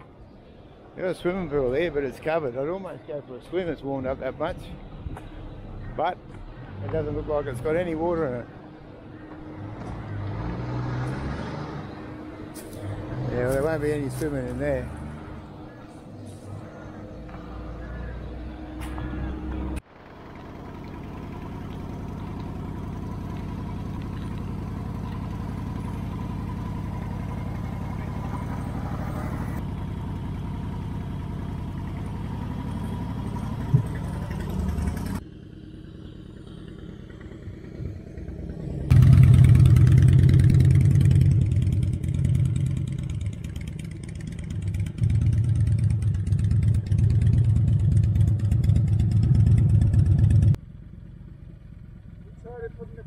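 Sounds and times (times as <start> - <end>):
motorcycle engine revving: 9.2 - 50.6
motorcycle engine running: 11.0 - 53.0.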